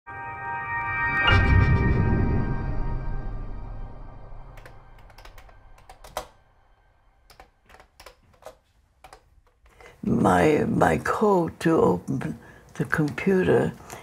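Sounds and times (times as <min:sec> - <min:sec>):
music track: 0:00.1 - 0:07.7
keyboard keys tapping: 0:04.6 - 0:06.4, 0:07.3 - 0:09.6.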